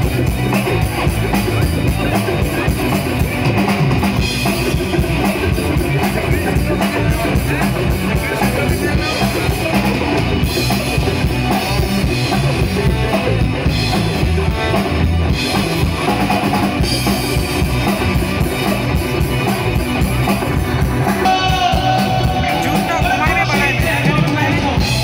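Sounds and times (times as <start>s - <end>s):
live rock band playing: 0.0s - 25.0s.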